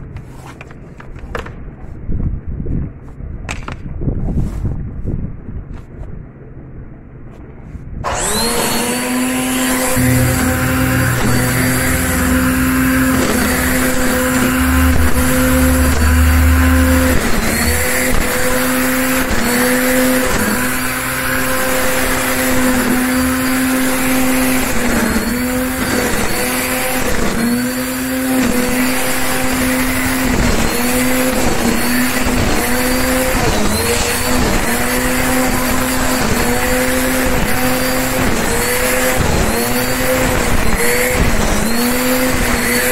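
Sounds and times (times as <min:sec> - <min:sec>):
electric string trimmer humming: 0:08.0 - 0:42.9
low rumble: 0:09.9 - 0:19.8.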